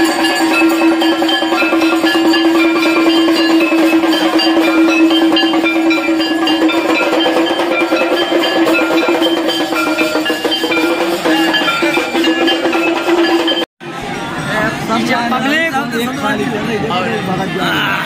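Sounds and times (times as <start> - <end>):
steel plates beaten by hand: 0.0 - 13.6.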